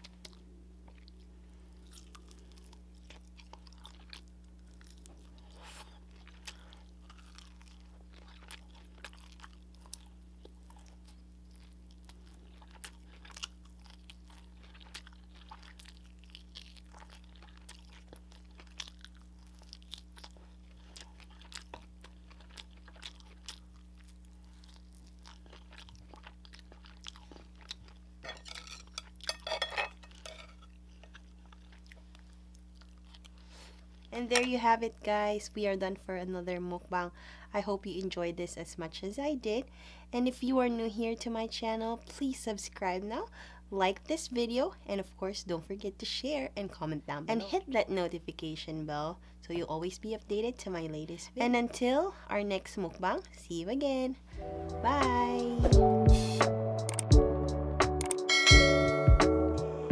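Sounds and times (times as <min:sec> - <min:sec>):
person chewing crunchy food: 0:00.0 - 0:34.4
faint steady hum: 0:00.0 - 0:59.9.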